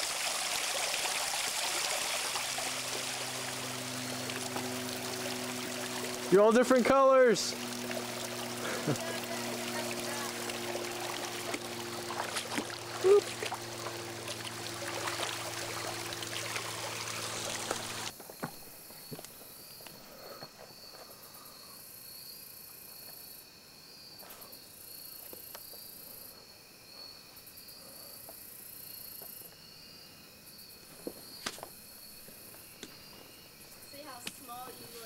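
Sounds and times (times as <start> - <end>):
rushing creek water: 0.0 - 18.1
crickets and insects trilling: 0.0 - 35.0.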